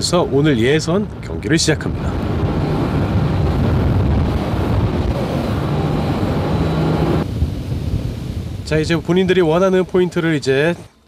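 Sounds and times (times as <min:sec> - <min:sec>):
rush of wind and water: 0:00.0 - 0:11.0
outboard motor running: 0:02.4 - 0:08.6.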